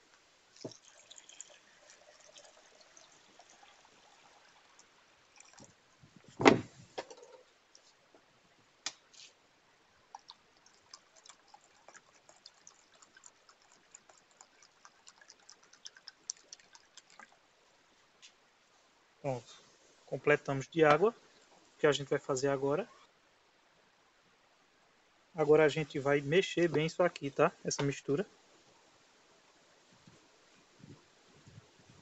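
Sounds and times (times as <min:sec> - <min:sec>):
water trickling and splashing: 0:00.4 - 0:06.4, 0:10.0 - 0:18.2
loud thump: 0:06.4 - 0:06.8.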